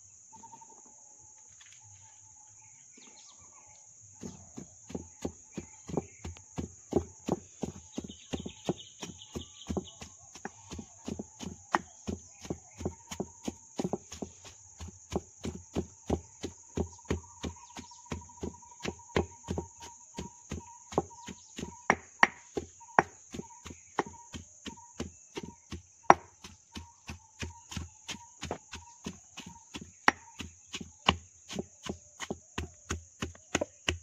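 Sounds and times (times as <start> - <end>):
stone pestle pounding in mortar: 4.2 - 34.0
sharp knocks of fruit cracking: 21.0 - 23.2.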